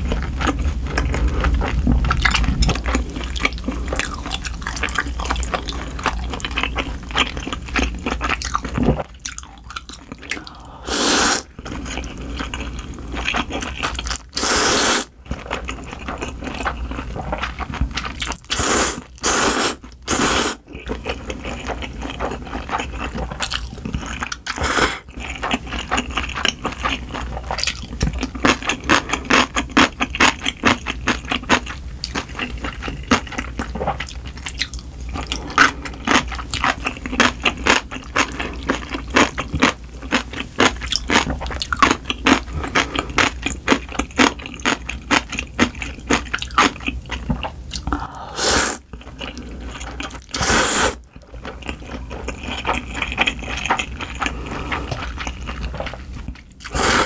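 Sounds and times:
wet chewing: 0:00.0 - 0:57.0
slurping noodles: 0:10.3 - 0:12.2, 0:14.4 - 0:15.1, 0:18.4 - 0:20.6, 0:24.5 - 0:25.1, 0:47.9 - 0:51.0, 0:56.7 - 0:57.0.

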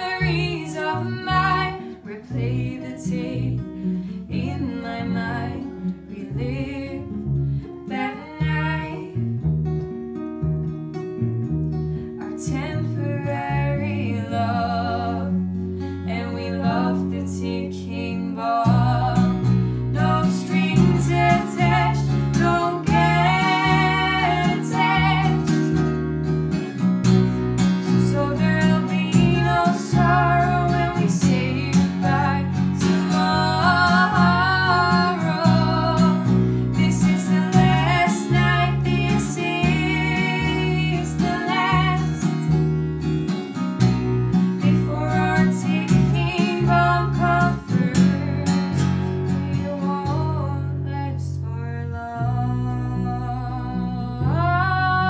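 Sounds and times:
woman singing: 0:00.0 - 0:07.2, 0:07.8 - 0:09.2, 0:12.2 - 0:25.8, 0:27.8 - 0:42.3, 0:44.6 - 0:55.0
strummed acoustic guitar: 0:00.0 - 0:50.9
electric bass line: 0:08.4 - 0:12.2, 0:18.7 - 0:49.3.

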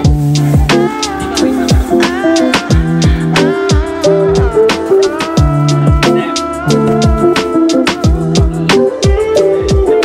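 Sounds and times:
deep kick drums: 0:02.7 - 0:04.6, 0:05.4 - 0:06.1, 0:06.7 - 0:07.4, 0:08.0 - 0:09.9.

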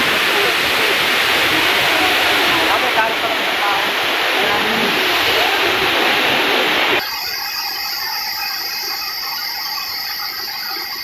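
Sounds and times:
waterfall rushing: 0:00.0 - 0:11.0
steady hiss with high ringing: 0:06.6 - 0:11.0.

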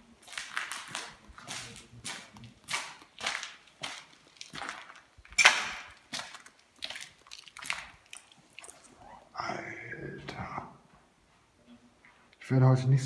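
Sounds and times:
footsteps crunching over debris: 0:00.0 - 0:09.0.

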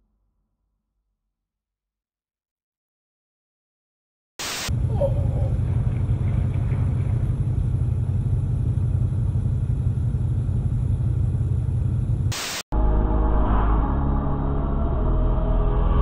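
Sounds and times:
low vehicle rumble: 0:04.7 - 0:12.3.

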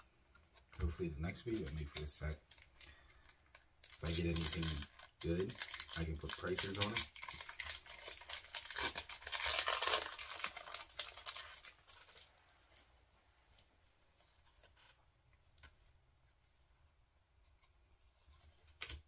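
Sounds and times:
foil wrapper tearing and crinkling: 0:00.8 - 0:12.4.

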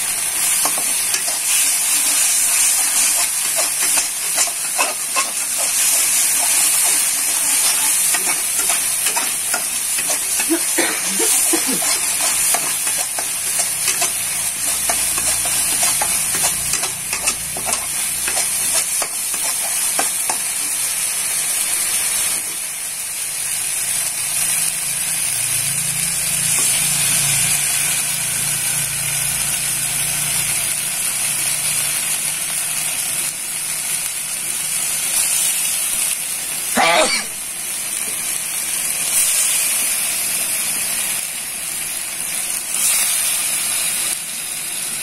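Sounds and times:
paste sizzling in a wok: 0:00.0 - 0:45.0
spatula scraping a pan: 0:00.3 - 0:20.7.

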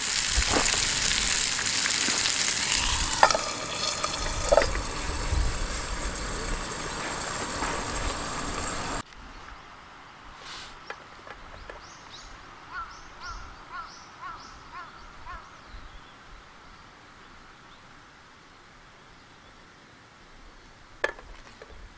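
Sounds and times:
meat sizzling in a frying pan: 0:00.0 - 0:09.0
faint outdoor ambience: 0:00.0 - 0:21.9.

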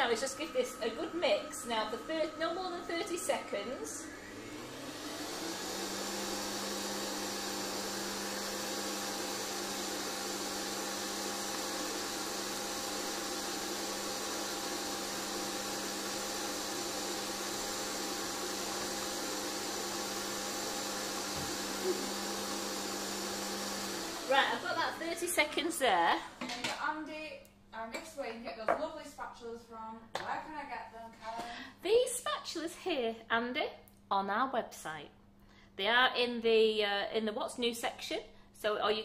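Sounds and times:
stand mixer motor hum: 0:00.4 - 0:25.0.

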